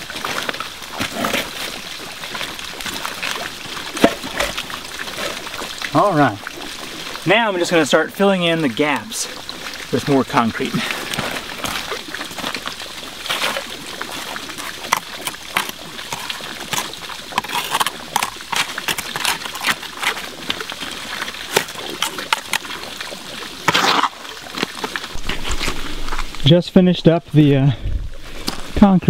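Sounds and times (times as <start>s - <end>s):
creek water trickling: 0.0s - 29.0s
wet concrete splats: 10.6s - 25.8s.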